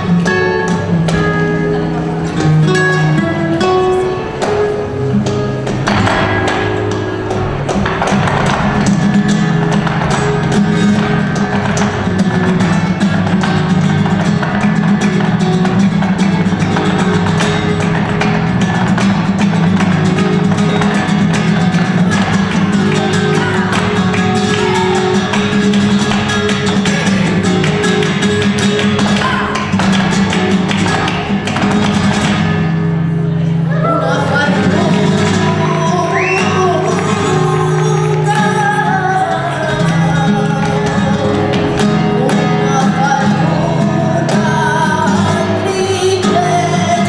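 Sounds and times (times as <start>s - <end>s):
dancers' footwork taps: 0.0s - 1.6s, 4.4s - 32.7s, 35.0s - 42.8s
flamenco guitar: 0.0s - 47.0s
hand clapping: 4.4s - 32.8s, 34.8s - 47.0s.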